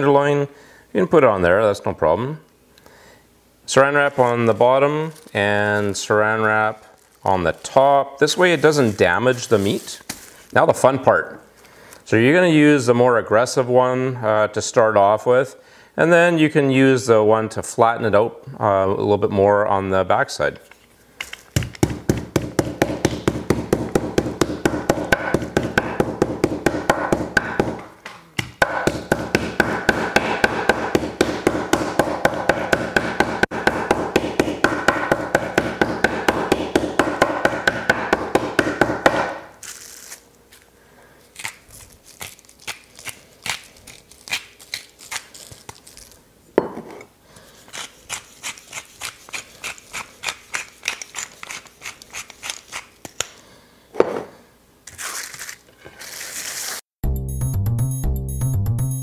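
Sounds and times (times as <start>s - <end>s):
meat mallet pounding: 21.6s - 39.4s
pepper mill grinding: 39.6s - 40.6s, 41.4s - 46.2s, 47.6s - 53.4s, 54.9s - 56.8s.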